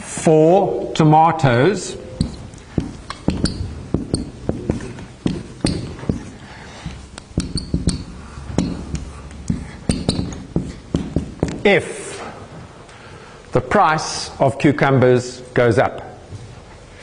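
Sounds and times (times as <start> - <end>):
marker tip squeaking: 2.1 - 11.6
marker tapping on whiteboard: 2.2 - 11.7.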